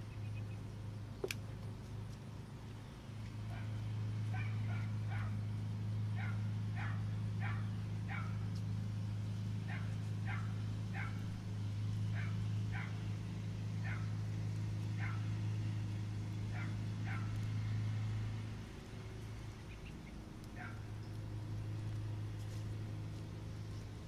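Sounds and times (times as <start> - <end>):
steady low hum: 0.0 - 24.0
dog barking: 3.5 - 5.4, 6.2 - 8.4, 9.7 - 11.3, 12.1 - 13.0, 13.8 - 14.1, 15.0 - 15.3, 16.5 - 17.4, 20.6 - 20.9.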